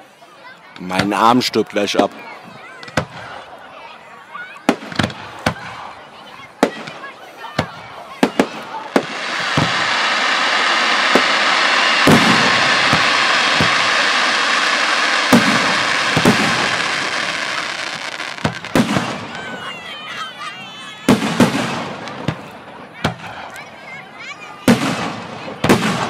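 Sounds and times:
firework bangs: 2.8s - 3.4s, 4.6s - 6.0s, 6.6s - 19.8s, 20.9s - 23.8s, 24.5s - 26.0s
firework crackling: 4.6s - 26.0s.

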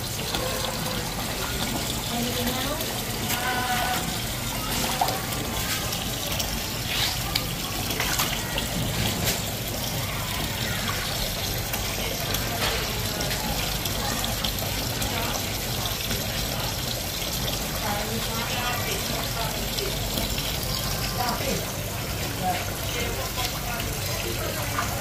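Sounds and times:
water running from a tap: 0.0s - 25.0s.

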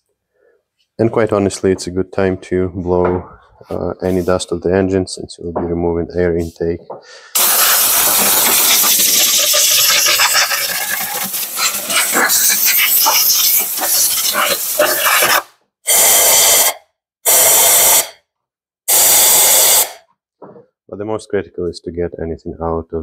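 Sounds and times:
compressed air blow gun hissing: 7.4s - 16.7s, 17.3s - 18.1s, 18.9s - 20.0s.

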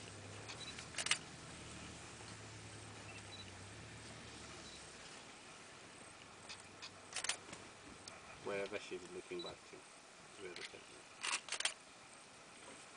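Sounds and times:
camera shutter double click: 11.2s - 11.8s.

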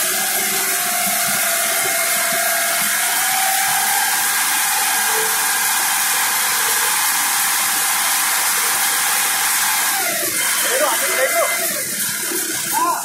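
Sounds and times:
constant whine: 0.0s - 13.0s
forklift hydraulics hissing: 0.0s - 13.0s.

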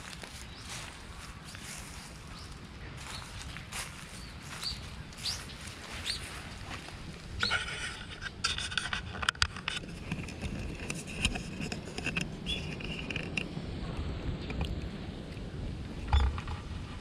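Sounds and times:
dry leaves crackling and rustling: 0.0s - 7.5s
birds chirping: 0.0s - 8.2s.

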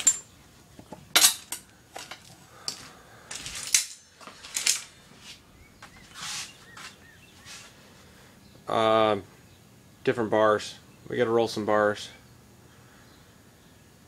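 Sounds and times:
scraping rustle: 3.3s - 7.8s.

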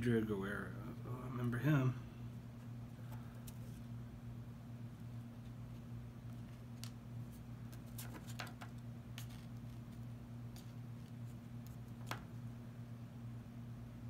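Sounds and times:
steady low hum: 0.0s - 14.0s
cards clicking and flicking: 7.7s - 9.6s.

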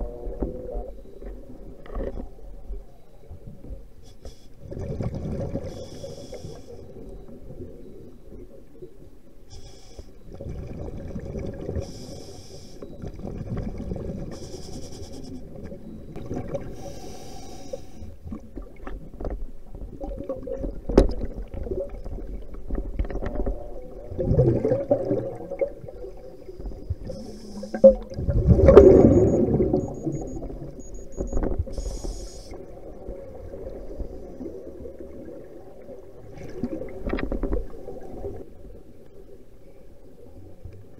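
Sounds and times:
underwater rumble: 0.0s - 40.9s
faint hiss: 5.7s - 7.0s, 9.5s - 10.2s, 11.8s - 13.0s, 14.2s - 15.7s, 16.6s - 18.2s, 26.2s - 28.0s, 31.7s - 33.0s.

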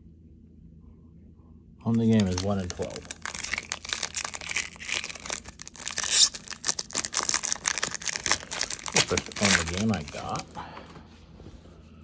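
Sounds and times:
foil wrapper tearing and crinkling: 1.9s - 10.5s.

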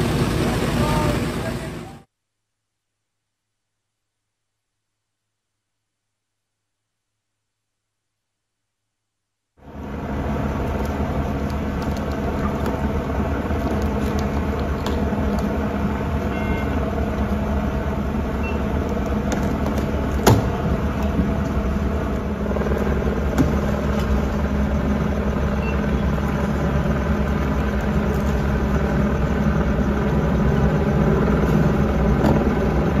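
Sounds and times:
engine idling: 0.0s - 2.0s, 9.6s - 33.0s.

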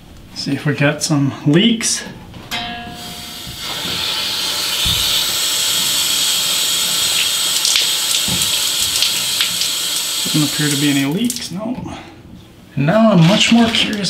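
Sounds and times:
water hissing through valve: 3.0s - 11.5s.

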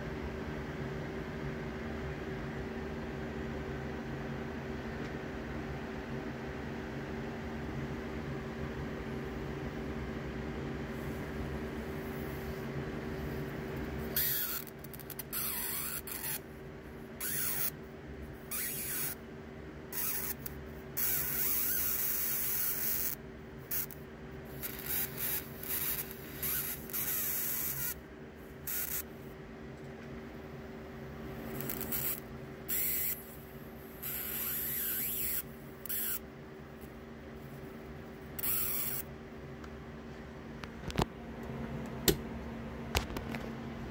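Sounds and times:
steady hum: 0.0s - 43.9s
electric arc hissing: 31.4s - 33.4s.

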